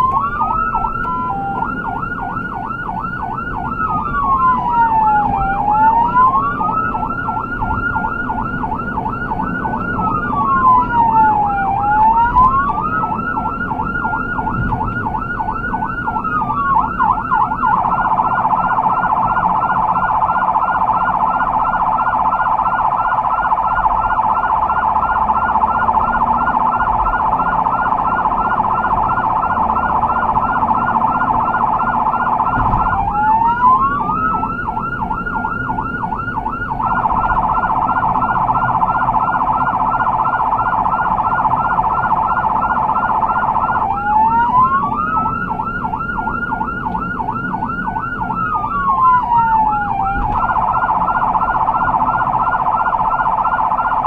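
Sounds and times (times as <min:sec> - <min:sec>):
electronic siren yelping: 0:00.0 - 0:54.0
engine and road noise: 0:00.0 - 0:54.0.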